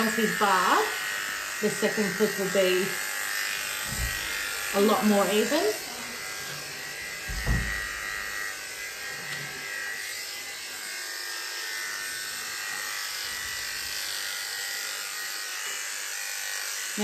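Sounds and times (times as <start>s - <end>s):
electric clippers running: 0.0s - 17.0s
brief low thump: 3.9s - 4.3s, 7.2s - 8.0s.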